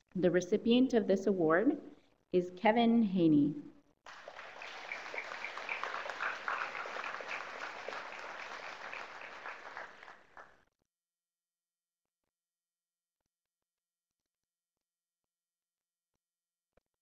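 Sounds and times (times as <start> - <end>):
audience applauding: 4.1 - 10.6.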